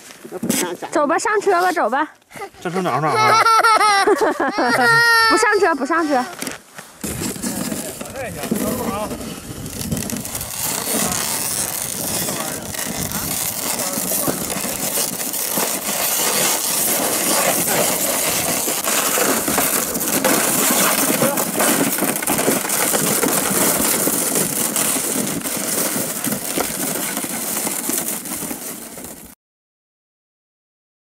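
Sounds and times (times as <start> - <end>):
sled scraping on snow: 0.0 - 29.4
footsteps on snow: 6.0 - 29.2.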